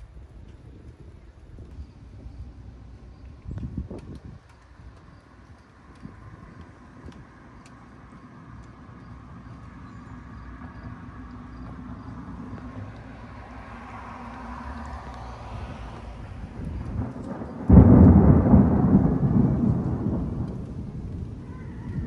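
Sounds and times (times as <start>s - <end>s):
low thunder rumble: 0.0s - 22.0s
loud rolling thunderclap: 15.6s - 22.0s.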